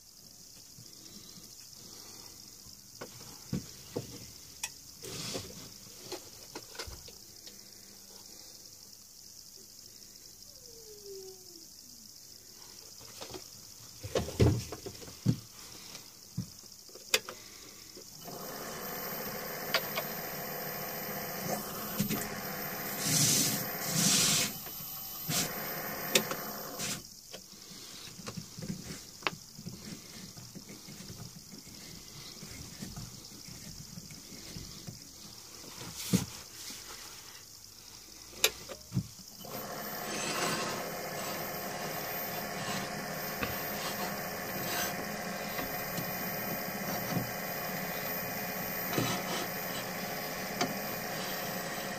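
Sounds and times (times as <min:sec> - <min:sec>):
knocks and clicks on lathe: 0:18.2 - 0:26.9, 0:39.4 - 0:51.9.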